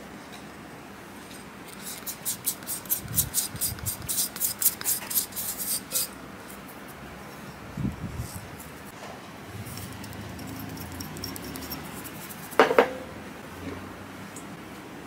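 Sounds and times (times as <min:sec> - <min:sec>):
dry ingredients ticking into glass bowl: 0:09.9 - 0:12.1.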